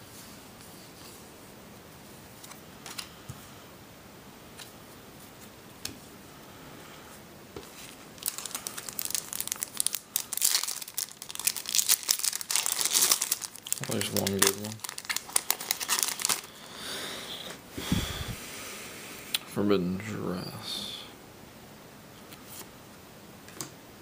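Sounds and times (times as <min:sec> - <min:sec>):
foil pack crinkled and torn: 0:08.2 - 0:16.6.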